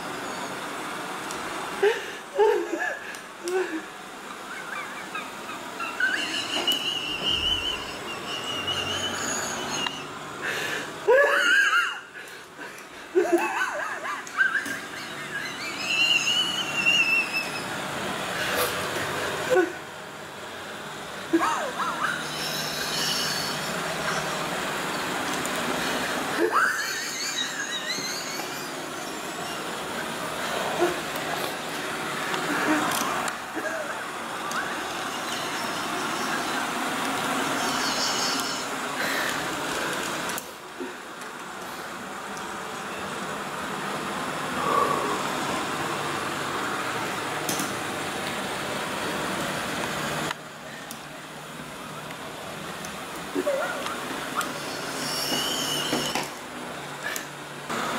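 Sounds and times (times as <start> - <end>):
squeal rising in pitch: 0.0 - 0.8, 4.5 - 10.2, 14.4 - 17.8, 21.5 - 25.1, 25.8 - 30.7, 34.5 - 38.8, 54.4 - 56.3
robot vacuum cleaner whirring: 0.0 - 57.9
wavering high whistle: 5.8 - 10.2, 14.6 - 17.8.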